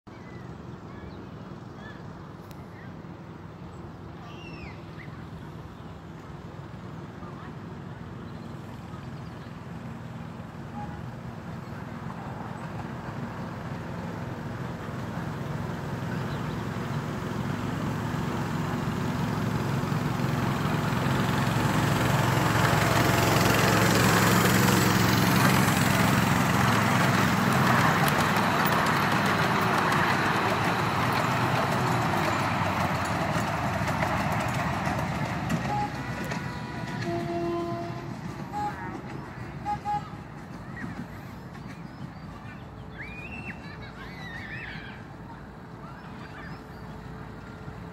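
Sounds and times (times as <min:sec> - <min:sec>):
wheels rumbling on rails: 0:00.1 - 0:47.9
miniature locomotive running: 0:11.1 - 0:47.9.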